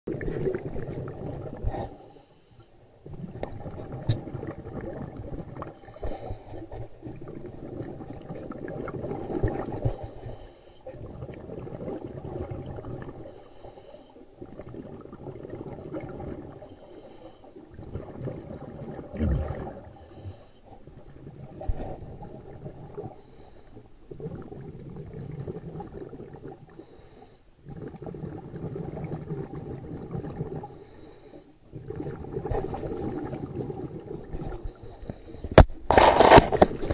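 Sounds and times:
diver breathing through regulator underwater: 5.8 - 6.8, 19.2 - 20.8, 34.5 - 36.6
bubbling exhalations: 17.7 - 20.2, 27.6 - 30.7.

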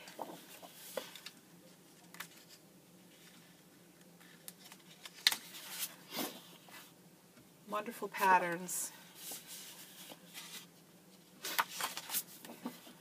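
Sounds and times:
faint steady hum: 0.0 - 13.0
paper rustling and sliding: 4.2 - 6.9, 9.1 - 13.0.

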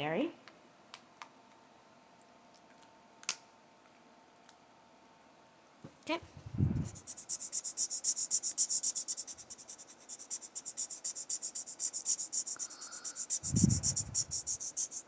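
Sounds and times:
marker scratching on paper: 6.8 - 15.0.

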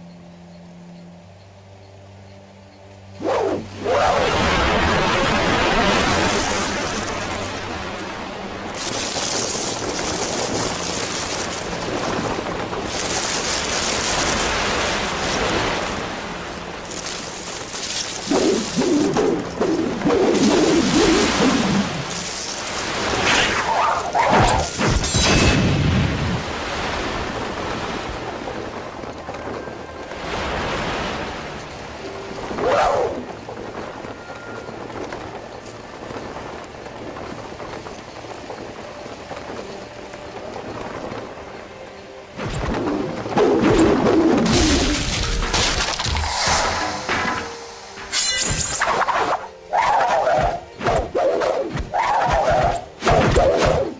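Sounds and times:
rushing wind: 3.0 - 53.9
loud rushing swell: 45.9 - 49.5.

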